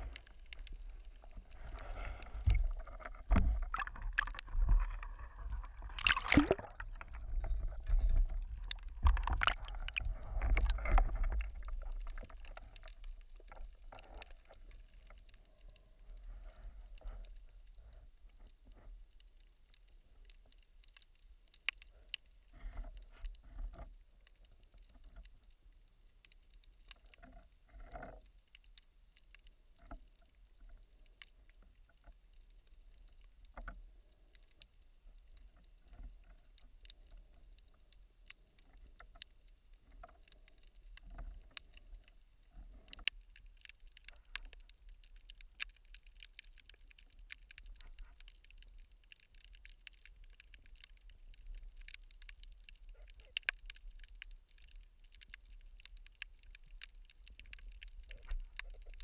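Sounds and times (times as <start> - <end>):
low underwater rumble: 0.0 - 20.7
underwater clicks and crackles: 0.0 - 59.0.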